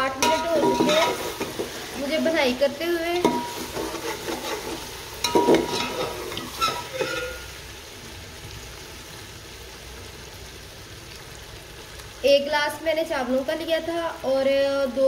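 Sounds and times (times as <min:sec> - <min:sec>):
meat sizzling in a pot: 0:00.0 - 0:15.0
spoon scraping and knocking pot: 0:00.2 - 0:01.8, 0:03.2 - 0:07.4.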